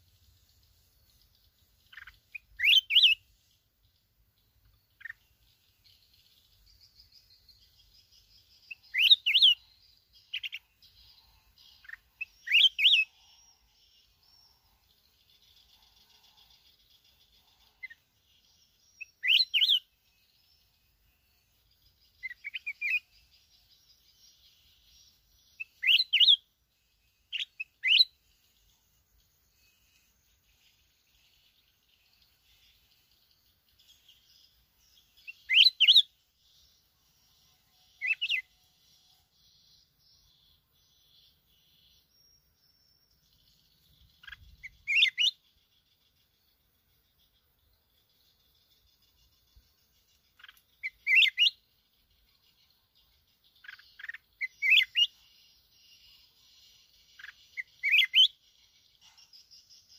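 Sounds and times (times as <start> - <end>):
bird whistled song: 0.0 - 46.4, 48.0 - 59.9
faint bird twittering: 0.0 - 59.9
bird rising chirps: 1.2 - 10.9, 11.5 - 14.2, 35.0 - 36.1, 41.0 - 45.5, 50.3 - 51.6, 53.6 - 55.2, 57.2 - 58.4.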